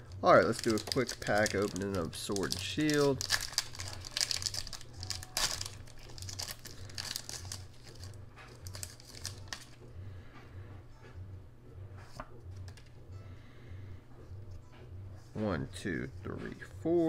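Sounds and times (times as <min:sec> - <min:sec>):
foil wrapper tearing and crinkling: 0:00.2 - 0:09.8.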